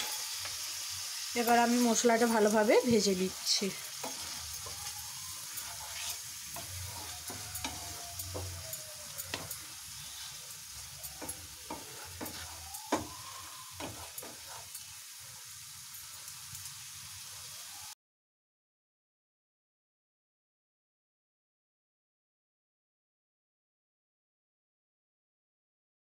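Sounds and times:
food sizzling in oil: 0.0s - 18.0s
wooden spatula scraping a pan: 1.4s - 17.5s.

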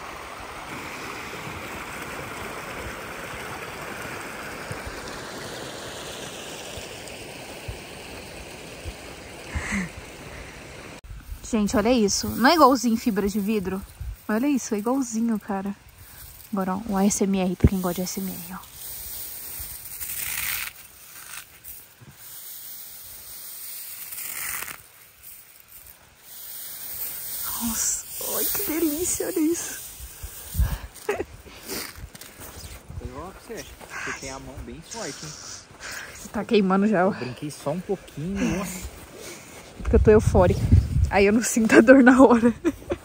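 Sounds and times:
running water rushing: 0.0s - 43.0s
snow crunching in hand: 11.5s - 43.0s.

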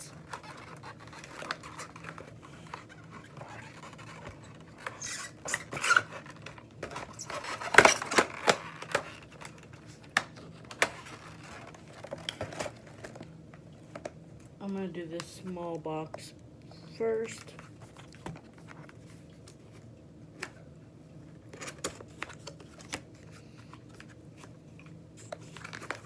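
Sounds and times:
packaging rubbing: 0.1s - 10.0s.

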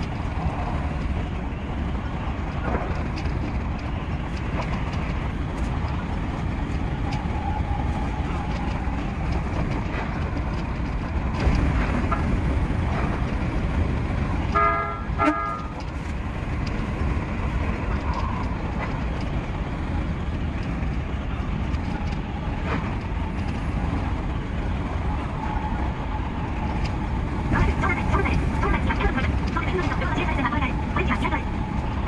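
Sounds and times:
electric train rumbling: 0.0s - 32.0s
train horn toot: 14.5s - 15.8s.

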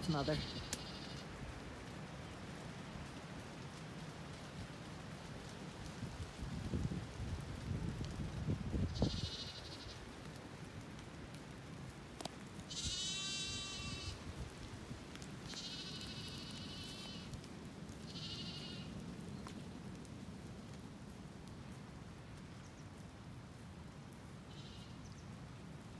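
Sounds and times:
rain: 0.0s - 25.9s
lambs bleating: 0.1s - 1.2s, 9.0s - 10.0s, 12.7s - 14.2s, 15.4s - 17.3s, 18.1s - 18.9s
wind noise: 5.2s - 10.8s, 12.8s - 17.6s.

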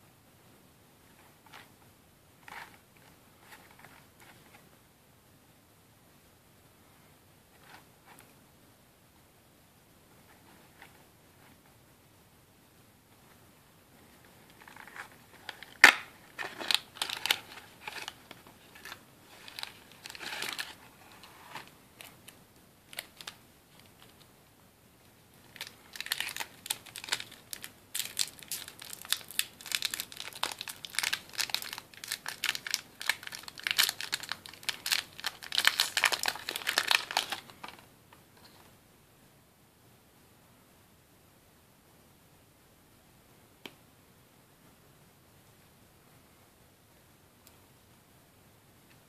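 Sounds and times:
plastic wrapper crinkling: 14.6s - 24.2s, 25.5s - 37.8s.

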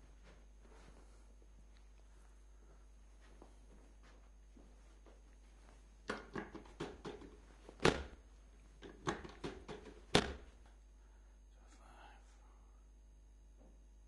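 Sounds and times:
treatment table knocks: 6.1s - 8.2s, 8.8s - 10.5s.

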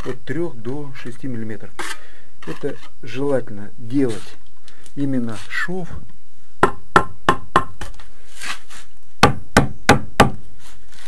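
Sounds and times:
hammer knocking on concrete block: 6.6s - 7.8s, 9.2s - 10.4s.

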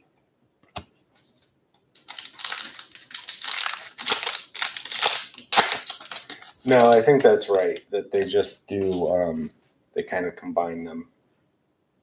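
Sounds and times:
foil wrapper tearing and crinkling: 2.0s - 9.0s.

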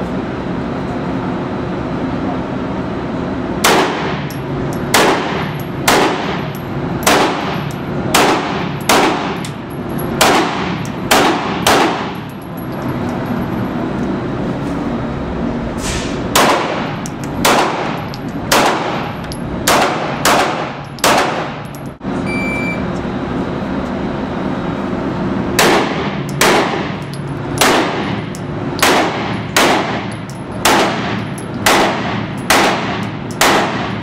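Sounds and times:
pistol shots echoing indoors: 3.6s - 4.2s, 4.9s - 9.5s, 10.2s - 12.2s, 16.3s - 21.6s, 25.6s - 27.0s, 27.6s - 28.2s, 28.8s - 34.0s
short beep: 22.2s - 22.9s.

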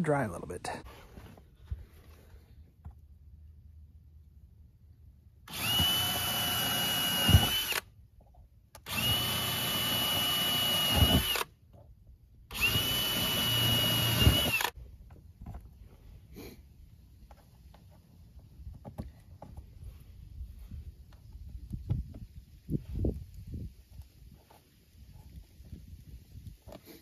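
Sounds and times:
cordless drill whining into wood: 5.4s - 7.9s, 8.8s - 11.6s, 12.5s - 14.8s.

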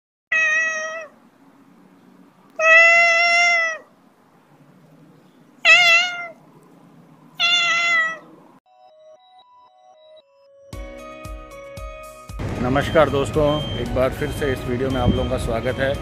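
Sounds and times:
cat meowing: 0.3s - 1.2s, 2.5s - 3.9s, 5.6s - 6.4s, 7.4s - 8.4s.

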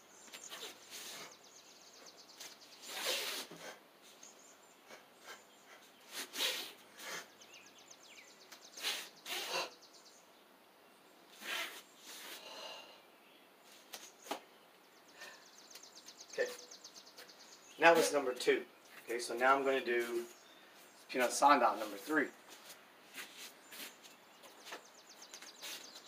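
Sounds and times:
short sharp breaths: 4.9s - 7.4s, 11.4s - 13.1s, 15.1s - 15.8s.

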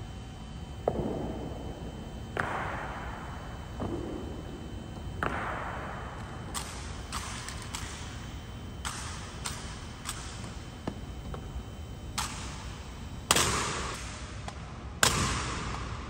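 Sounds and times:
loud echoing rifle strikes: 2.4s - 4.5s, 5.2s - 8.2s, 13.3s - 14.3s, 15.0s - 16.0s.

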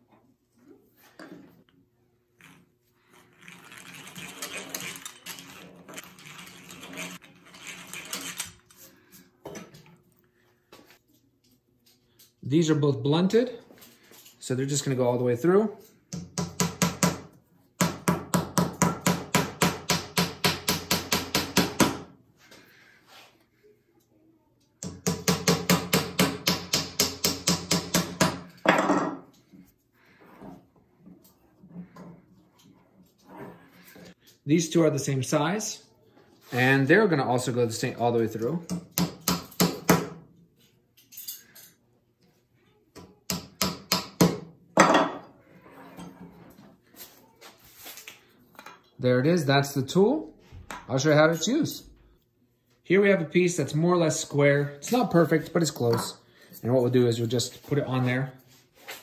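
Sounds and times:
hammer hitting nail into wood: 16.2s - 22.1s, 24.8s - 28.5s, 38.7s - 40.2s, 43.3s - 44.5s.

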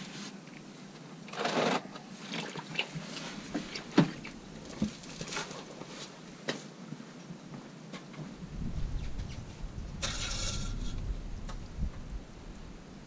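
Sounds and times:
low rumble: 8.4s - 12.8s.

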